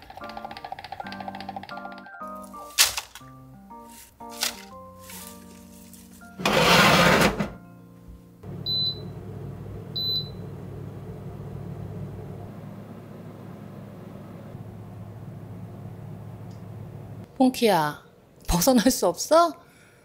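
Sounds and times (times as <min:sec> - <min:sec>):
fan humming: 0:02.7 - 0:07.6, 0:08.4 - 0:17.3.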